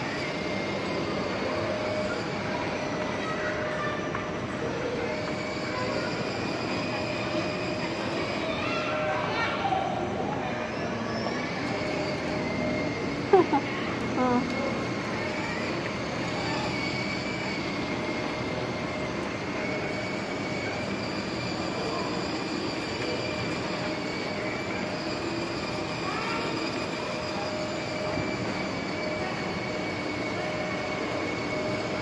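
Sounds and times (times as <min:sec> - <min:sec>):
toy car electric motor whine: 0:00.0 - 0:32.0.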